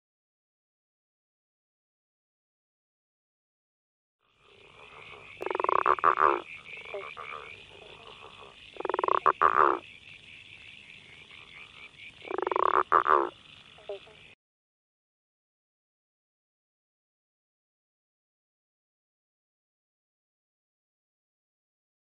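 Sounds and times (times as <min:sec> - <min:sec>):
chorus of frogs: 0:04.2 - 0:14.4
frog pulsed call: 0:04.2 - 0:14.4.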